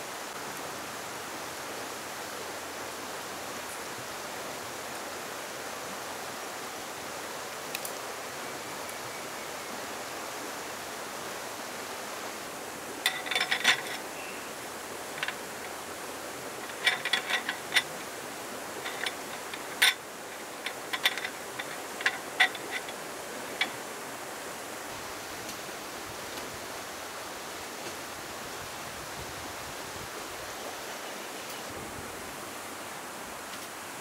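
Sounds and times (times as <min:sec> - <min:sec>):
flowing water rushing: 0:00.0 - 0:34.0
metal slats clicking and rattling: 0:13.0 - 0:14.1, 0:15.0 - 0:15.9, 0:16.5 - 0:23.9.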